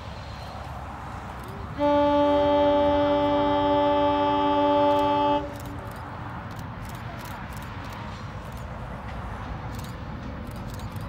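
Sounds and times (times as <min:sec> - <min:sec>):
locomotive horn blast: 0:01.7 - 0:05.9.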